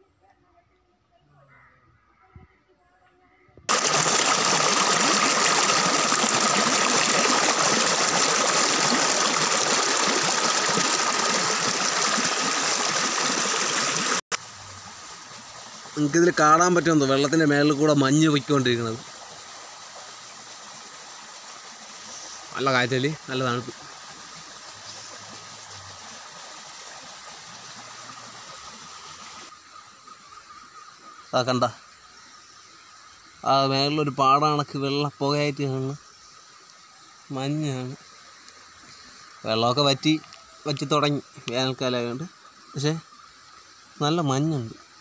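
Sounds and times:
stream splashing over rocks: 3.7 - 29.5.

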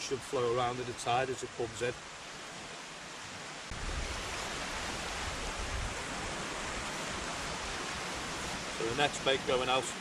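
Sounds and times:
wind on microphone: 3.7 - 8.8.

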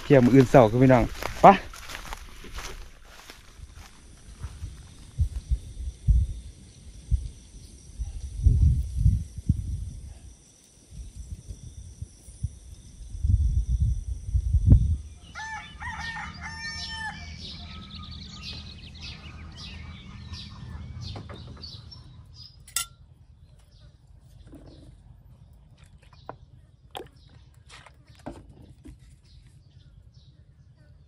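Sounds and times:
rooster crowing: 15.2 - 21.1
metal spoon clinking ceramic bowl: 22.7 - 23.0.

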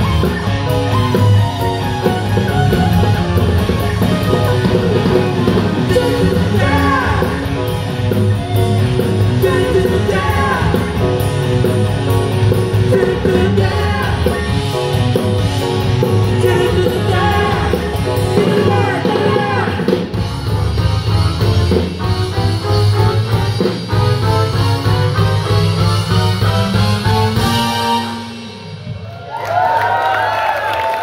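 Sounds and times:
live rock band playing: 0.0 - 30.0
person singing: 5.8 - 7.8, 9.3 - 11.2, 12.8 - 14.6, 16.2 - 20.0.

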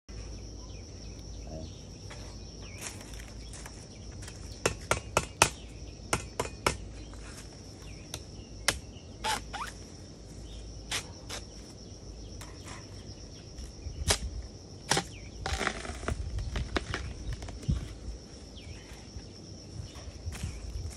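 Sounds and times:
high insect drone: 0.1 - 20.9.

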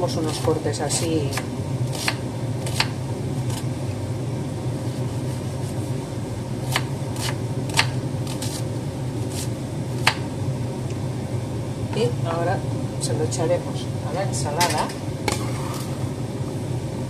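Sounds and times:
steady low hum: 0.0 - 17.0
knife chopping on wooden board: 1.3 - 3.6, 6.7 - 8.6, 9.3 - 10.2.

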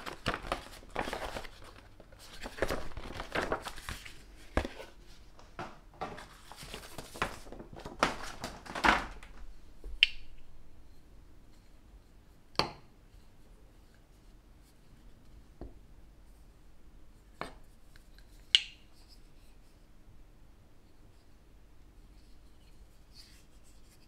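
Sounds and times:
paper leaflet rustling: 0.0 - 9.6.

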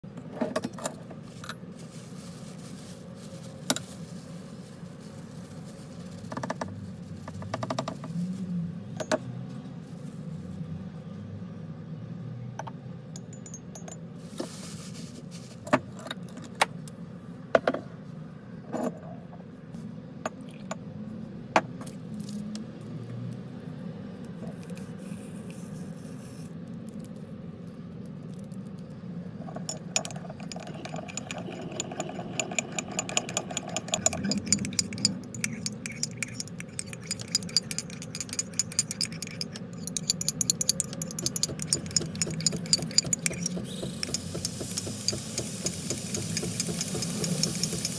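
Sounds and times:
plastic bag rustling: 1.7 - 6.2, 14.5 - 15.6
metal spoon tapping enamel mug: 13.2 - 14.0, 29.6 - 47.9
spoon clinking while stirring: 29.6 - 47.9.

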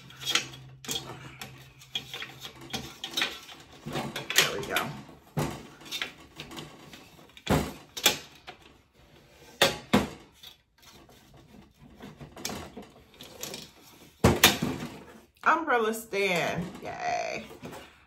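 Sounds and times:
umbrella stand knocks and clatter: 0.1 - 8.8, 11.1 - 15.2.

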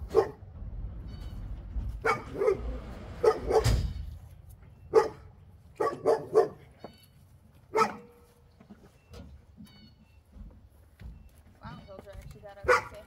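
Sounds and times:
dog barking: 0.0 - 0.4, 2.0 - 3.8, 4.9 - 6.7, 7.7 - 8.2, 12.6 - 13.0.

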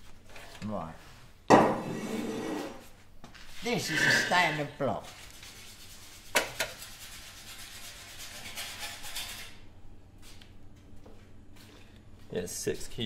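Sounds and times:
metal block scraping on bench: 1.8 - 2.8, 3.7 - 4.7.

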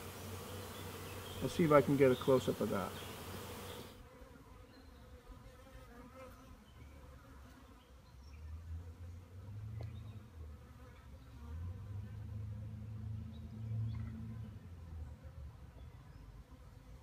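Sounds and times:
bees buzzing: 0.0 - 6.4.

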